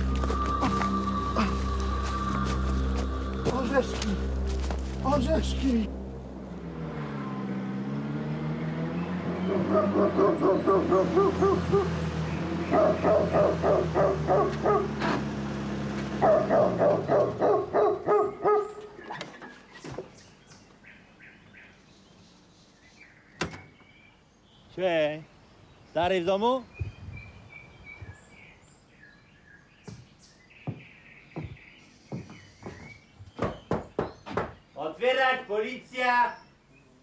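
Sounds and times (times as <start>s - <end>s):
engine humming: 0.0s - 21.2s
dog barking: 9.6s - 11.9s, 12.7s - 15.0s, 16.2s - 18.8s
sharp knocks: 30.7s - 34.6s.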